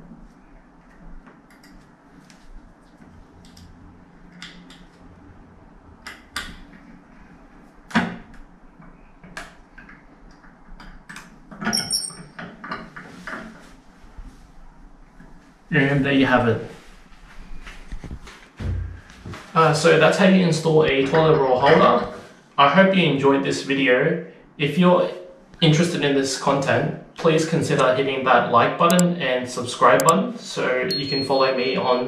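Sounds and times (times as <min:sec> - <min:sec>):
ringing clink of metal: 0:11.7 - 0:12.3.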